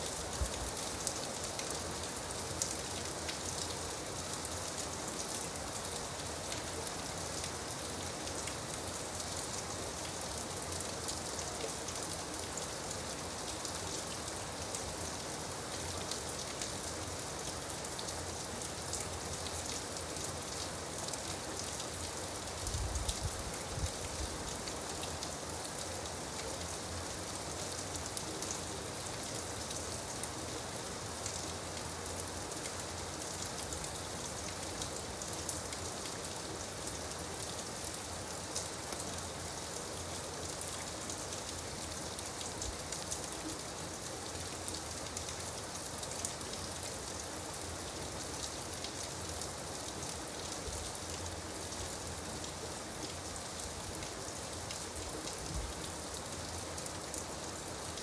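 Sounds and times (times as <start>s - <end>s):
gentle rain patter: 0.0s - 58.0s.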